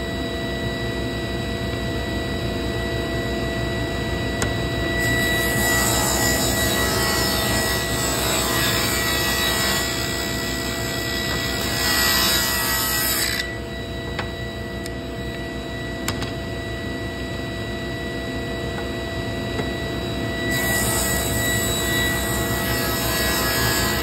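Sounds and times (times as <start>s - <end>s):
table saw ripping wood: 5.0s - 13.6s, 20.5s - 24.0s.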